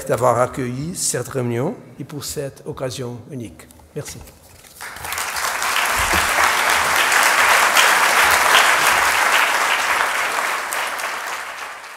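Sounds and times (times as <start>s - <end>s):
audience applauding: 4.8s - 11.9s.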